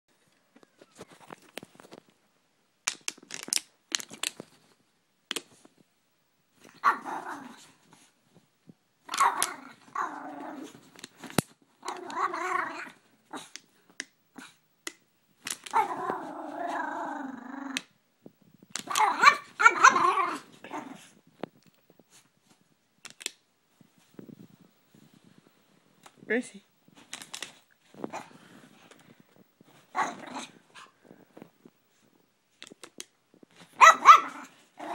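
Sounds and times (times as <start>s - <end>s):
dog growling and barking: 6.7s - 7.8s, 9.0s - 10.9s, 11.8s - 13.6s, 15.7s - 17.9s, 18.8s - 21.2s, 28.0s - 28.4s, 29.8s - 31.0s, 33.7s - 34.9s.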